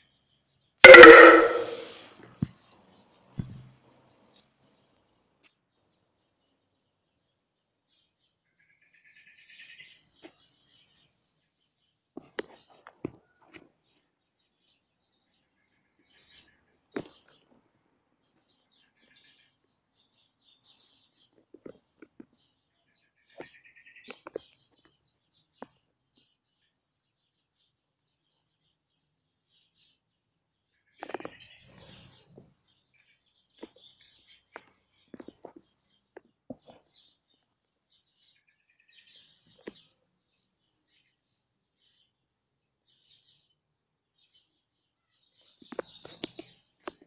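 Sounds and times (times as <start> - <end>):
birds chirping: 30.7 - 42.2.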